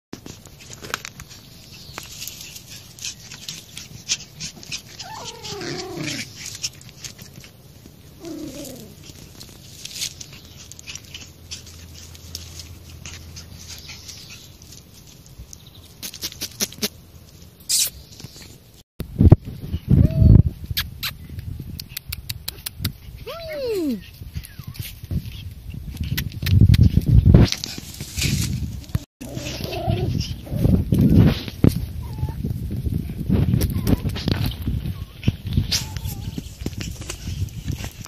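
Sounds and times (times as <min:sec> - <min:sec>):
puppies scuffling in dry leaves: 0:00.2 - 0:18.8, 0:26.6 - 0:38.0
puppy whimpers: 0:04.9 - 0:06.4, 0:08.2 - 0:09.0, 0:32.0 - 0:32.4, 0:34.8 - 0:36.4.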